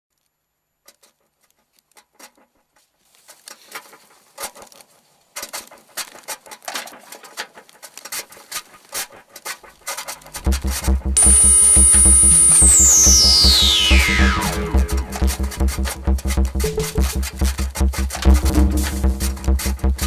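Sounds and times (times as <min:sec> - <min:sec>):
crackling clicks: 0:10.2 - 0:20.0.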